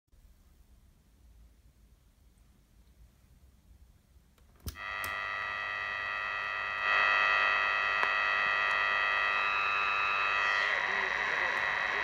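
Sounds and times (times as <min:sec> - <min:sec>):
radio switch click: 0:04.6 - 0:05.2, 0:07.9 - 0:08.9
radio static: 0:04.8 - 0:12.0
whistling radio tones: 0:05.0 - 0:12.0.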